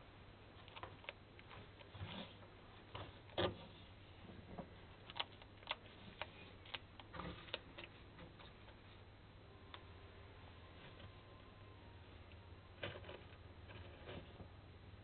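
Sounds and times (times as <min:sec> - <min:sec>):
lizards crunching mealworms: 0:00.6 - 0:03.8, 0:04.7 - 0:09.0.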